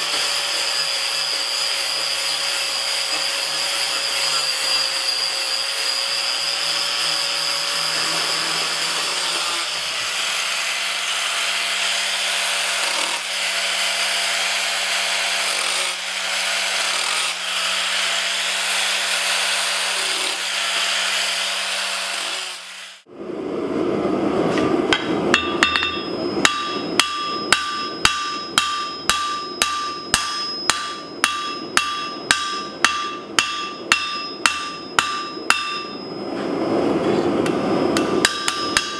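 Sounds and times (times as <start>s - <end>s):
angle grinder grinding steel: 0.0s - 23.1s, 25.0s - 36.5s
hammer striking steel on anvil: 24.9s - 36.4s, 37.4s - 38.9s.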